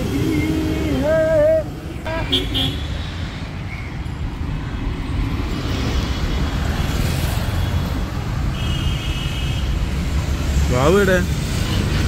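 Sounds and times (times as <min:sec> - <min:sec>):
passing traffic rumble: 0:00.0 - 0:12.0.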